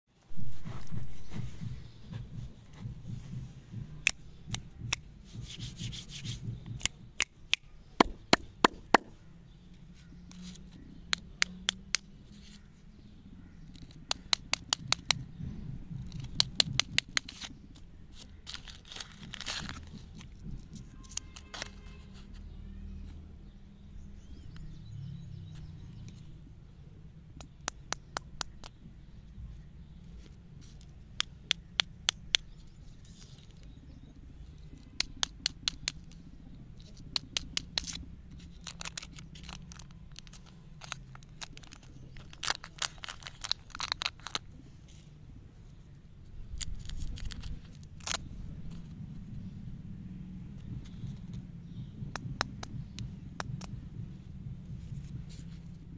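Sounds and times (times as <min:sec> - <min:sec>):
low steady rumble: 0:00.2 - 0:07.5, 0:15.0 - 0:21.3, 0:28.3 - 0:55.9
wrappers crinkling: 0:18.2 - 0:22.0, 0:36.9 - 0:44.5.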